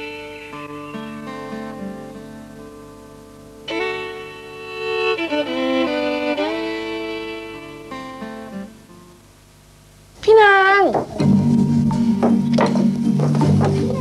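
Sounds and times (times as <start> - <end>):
slow violin melody: 0.0 - 2.0, 3.6 - 8.8
held string notes: 0.0 - 9.2, 11.0 - 14.0.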